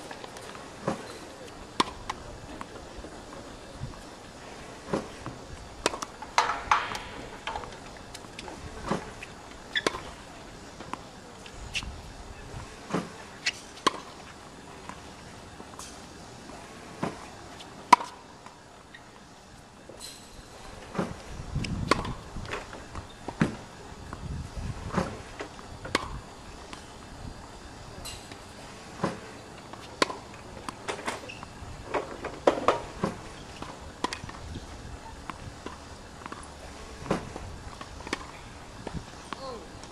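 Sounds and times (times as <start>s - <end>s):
racket hitting tennis ball: 0.7s - 2.7s, 4.8s - 10.2s, 12.8s - 14.2s, 17.0s - 18.2s, 21.9s - 22.2s, 25.9s - 26.9s, 28.1s - 31.4s, 32.4s - 34.4s, 35.2s - 39.9s
tennis ball bouncing on court: 1.8s - 2.7s, 4.9s - 9.0s, 12.9s - 14.1s, 17.9s - 18.2s, 21.9s - 22.1s, 25.9s - 26.9s, 32.7s - 34.4s, 35.2s - 39.6s.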